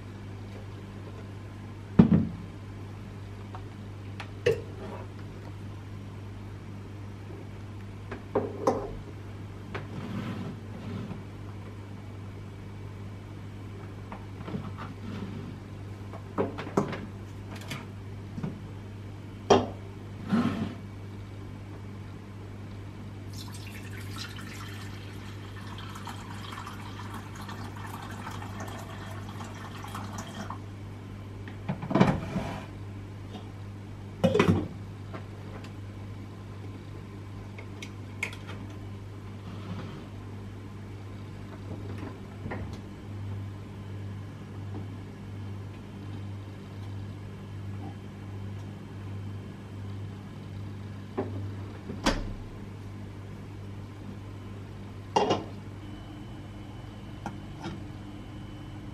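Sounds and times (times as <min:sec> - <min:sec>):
low steady hum: 0:00.0 - 0:58.9
water pouring from kettle: 0:23.3 - 0:30.6.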